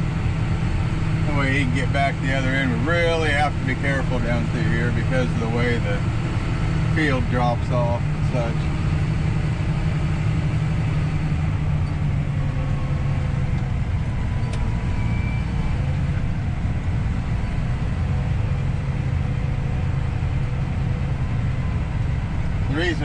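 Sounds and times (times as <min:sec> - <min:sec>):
combine harvester running: 0:00.0 - 0:23.0
tractor engine rumble: 0:00.0 - 0:23.0.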